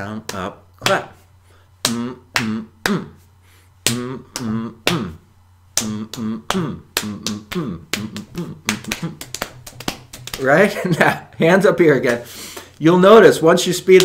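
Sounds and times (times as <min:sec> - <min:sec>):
hand slapping body percussion: 0:00.0 - 0:01.2, 0:01.8 - 0:11.2, 0:11.8 - 0:12.8.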